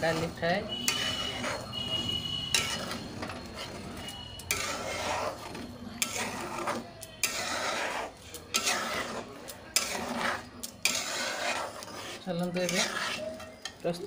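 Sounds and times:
metal spoon scraping a pan: 0:00.0 - 0:14.0.

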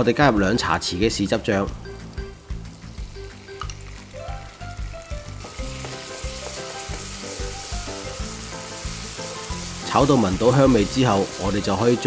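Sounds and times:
vegetables frying in oil: 0:02.3 - 0:12.0.

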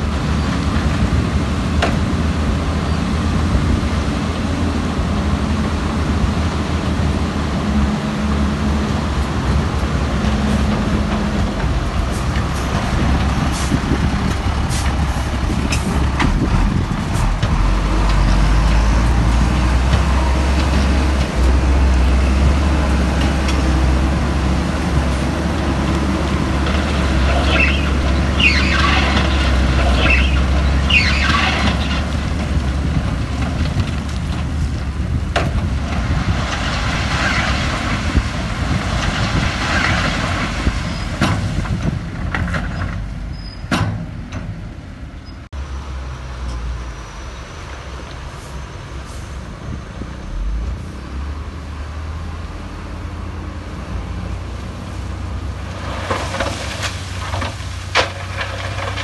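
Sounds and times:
heavy diesel machinery engine drone: 0:00.0 - 0:59.0
high squeals: 0:27.3 - 0:31.9.

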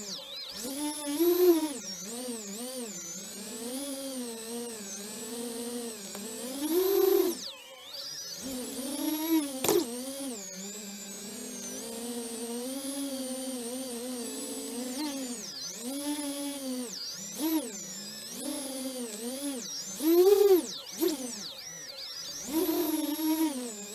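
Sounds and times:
drone motors whining: 0:00.0 - 0:23.9
sharp click: 0:06.1 - 0:06.7, 0:09.4 - 0:10.0.

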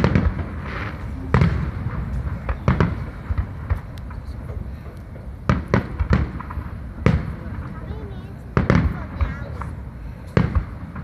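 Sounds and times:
faint fireworks pops: 0:00.0 - 0:11.0
fireworks bursting: 0:00.0 - 0:11.0.

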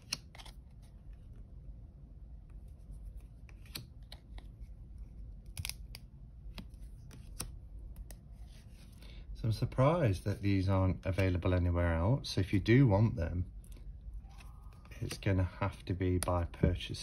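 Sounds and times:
light card clicks and snaps: 0:00.0 - 0:00.5, 0:03.5 - 0:04.4, 0:05.5 - 0:08.2
cards sliding and rustling: 0:00.0 - 0:01.5, 0:02.5 - 0:09.0, 0:13.7 - 0:15.5.

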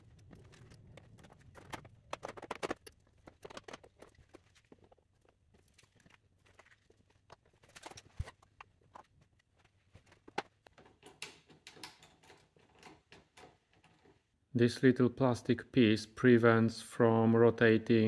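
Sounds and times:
plastic parts clicking and knocking: 0:00.0 - 0:14.4.

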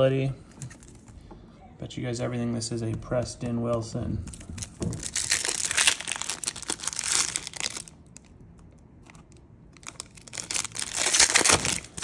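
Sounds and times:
foil wrapper tearing and crinkling: 0:04.3 - 0:08.3, 0:09.8 - 0:12.0.

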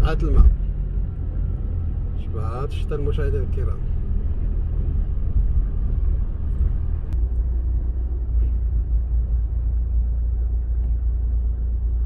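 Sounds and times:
car engine and tyres on wet road: 0:00.0 - 0:12.0.

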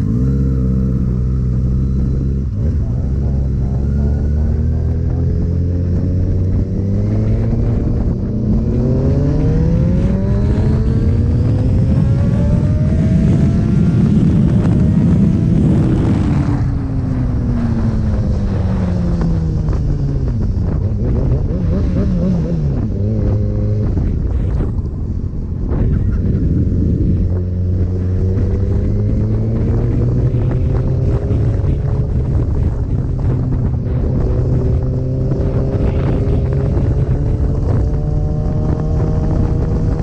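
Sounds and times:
motorcycle engine accelerating: 0:00.0 - 0:40.0
wind rushing over microphone: 0:00.0 - 0:40.0.

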